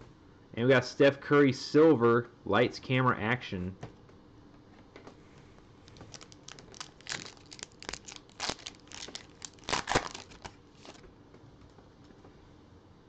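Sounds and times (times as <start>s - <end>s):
wrapper tearing and crinkling: 5.9s - 11.0s.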